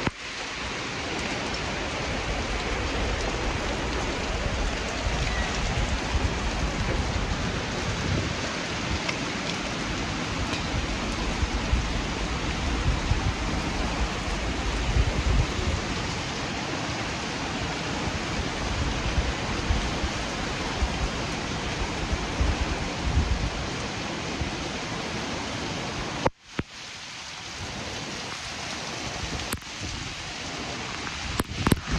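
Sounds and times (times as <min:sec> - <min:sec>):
heavy rain pouring: 0:00.0 - 0:31.9
low rumbling surges: 0:00.7 - 0:23.7.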